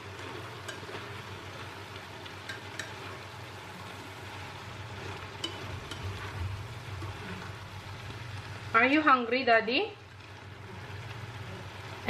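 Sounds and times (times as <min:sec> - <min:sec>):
vegetables sizzling in frying pan: 0:00.0 - 0:12.0
spatula clicking against pan: 0:02.4 - 0:03.0, 0:05.4 - 0:06.0.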